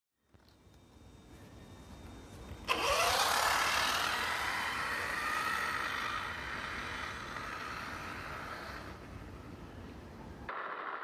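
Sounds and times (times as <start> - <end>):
electric motor whine: 0.3 - 11.0.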